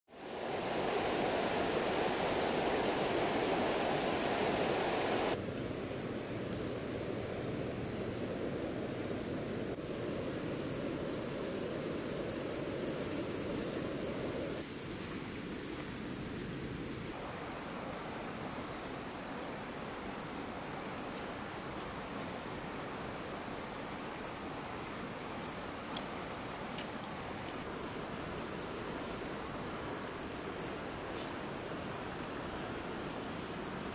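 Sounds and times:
rushing hiss: 0.1 - 5.4
insect high-pitched whine: 0.1 - 33.9.

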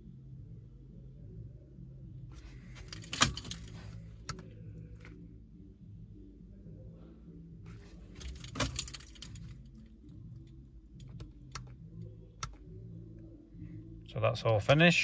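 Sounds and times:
low steady hum: 0.0 - 15.0
car keys jangling: 2.4 - 4.4, 7.8 - 11.8.

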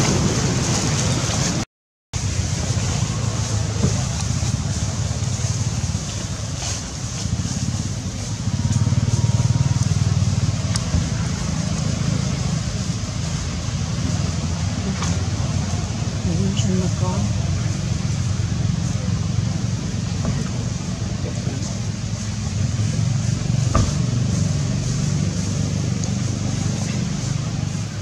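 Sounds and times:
steady low rumbling: 2.2 - 28.0.

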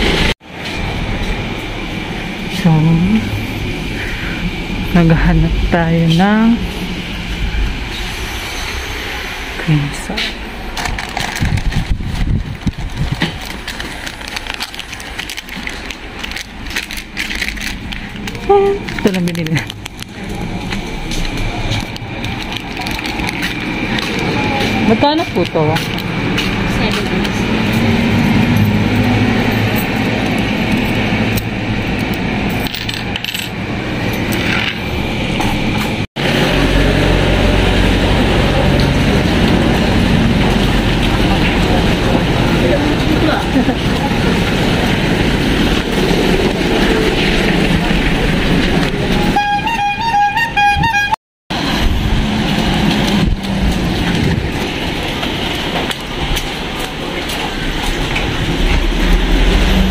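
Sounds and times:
plastic sachets crinkling: 10.8 - 20.8, 21.7 - 24.4
coins clinking: 32.5 - 34.8
steady rain: 36.2 - 49.3, 51.5 - 59.9.

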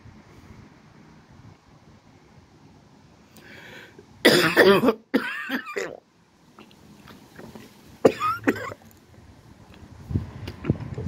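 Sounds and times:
person coughing: 4.2 - 6.0, 8.1 - 8.8.

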